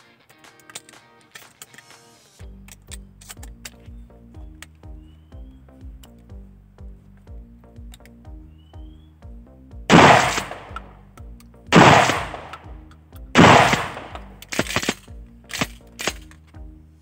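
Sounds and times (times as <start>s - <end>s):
light sharp cracks: 0.2s - 2.0s, 9.9s - 16.6s
shotgun shots echoing: 9.9s - 10.9s, 11.7s - 12.8s, 13.4s - 15.0s.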